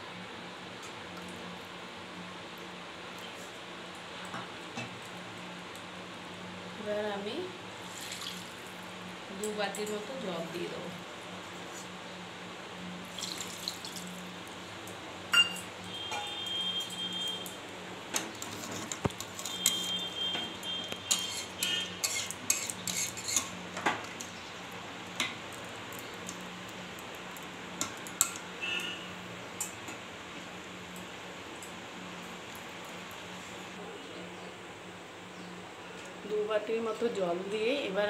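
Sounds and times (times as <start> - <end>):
spoon clinking against metal pot: 15.4 - 16.4
metal spoon stirring liquid: 18.4 - 23.6.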